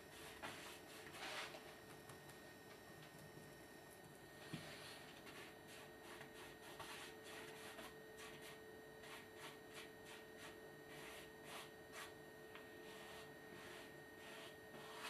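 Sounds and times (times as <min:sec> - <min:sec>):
paintbrush strokes on canvas: 0:00.1 - 0:01.6, 0:04.4 - 0:12.2, 0:12.8 - 0:15.0.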